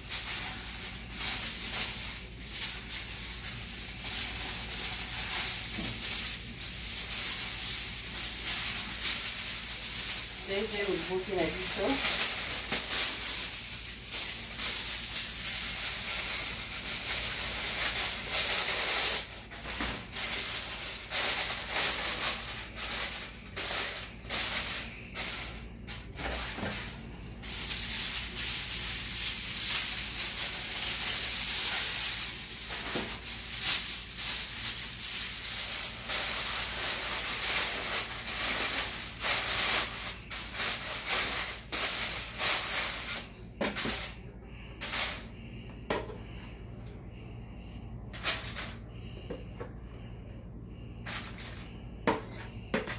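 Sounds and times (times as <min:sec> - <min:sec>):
aluminium foil crinkling: 0:00.0 - 0:45.3.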